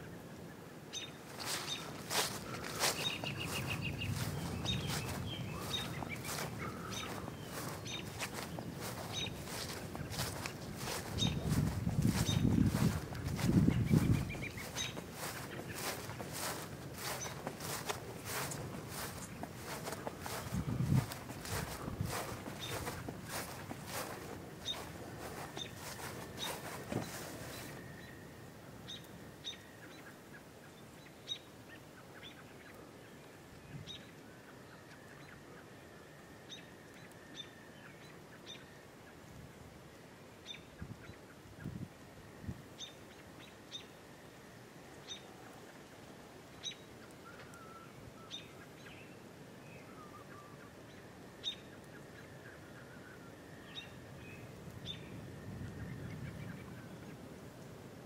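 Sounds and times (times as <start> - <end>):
birds chirping: 0.0 - 39.2.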